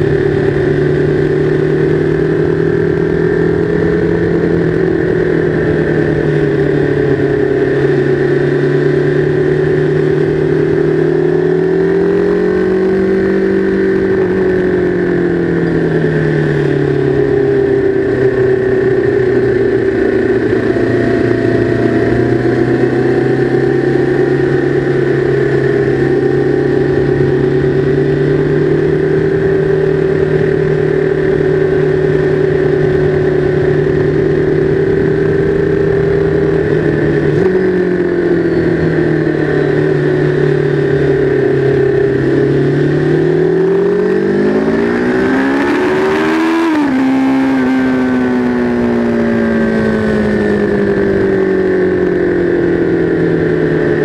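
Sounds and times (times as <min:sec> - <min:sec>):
motorcycle engine droning: 0:00.0 - 0:54.0.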